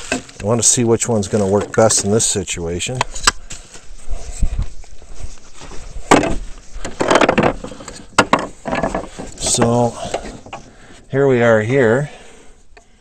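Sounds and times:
rustling handling noise: 0.0 - 11.8
sharp clicks and knocks: 6.1 - 10.7.

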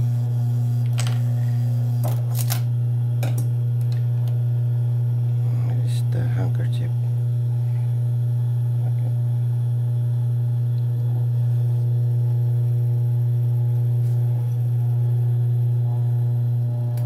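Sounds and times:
sewing machine motor humming: 0.0 - 2.7.

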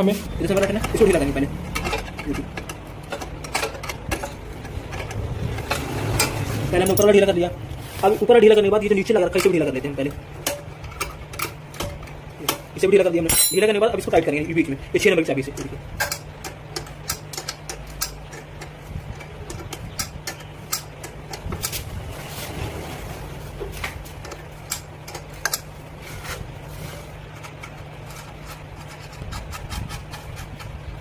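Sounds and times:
small tool clicking on metal: 15.6 - 21.8.

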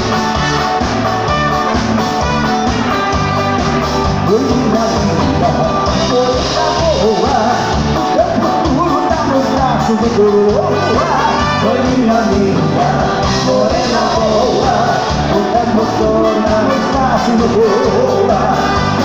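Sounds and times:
live dance band playing: 0.0 - 19.0
man singing into a microphone: 4.1 - 19.0.

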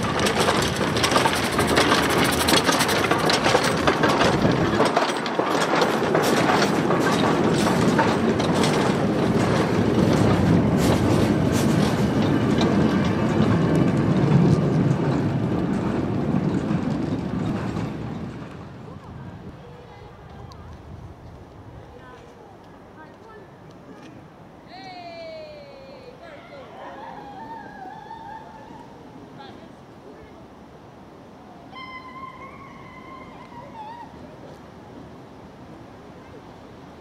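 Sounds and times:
steam train wheels clattering: 0.0 - 22.2.

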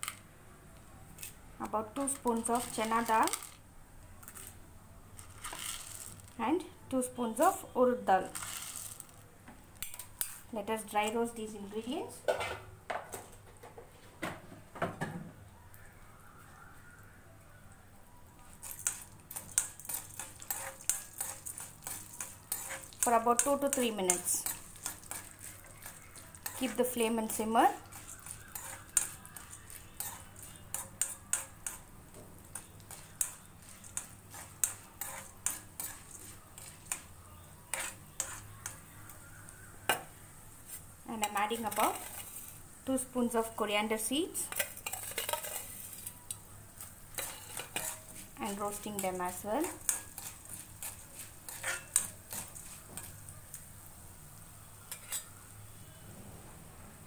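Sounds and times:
metal spoon scraping a pan: 2.0 - 3.6, 9.8 - 10.9, 18.5 - 53.9, 54.7 - 55.5.

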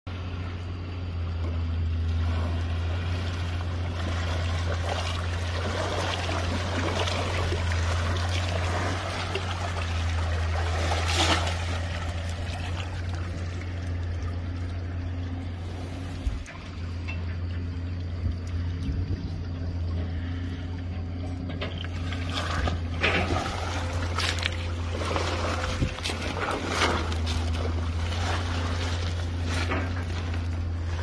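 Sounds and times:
low hum: 0.1 - 31.0
elephant splashing in water: 2.0 - 16.7, 21.9 - 31.0.

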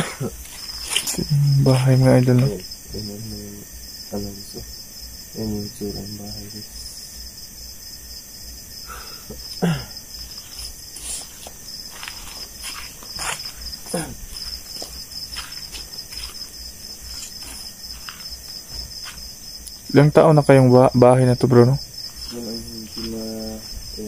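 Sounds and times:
crickets chirping: 0.0 - 24.0
footsteps on dry leaves: 0.4 - 2.0, 10.3 - 19.3.

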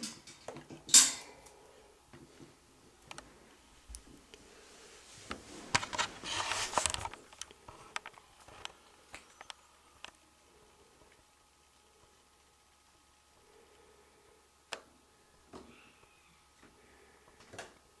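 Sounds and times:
clicks and knocks on metal bars: 0.0 - 1.4.

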